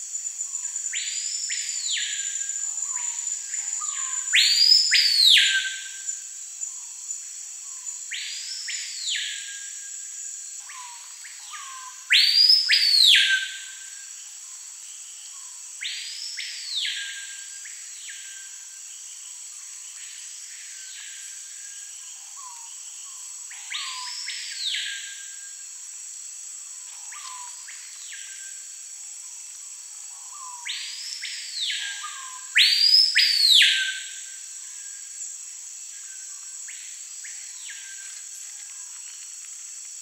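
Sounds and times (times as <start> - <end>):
bird's loud whistled song: 3.8 - 5.9, 10.8 - 13.7, 30.4 - 34.2.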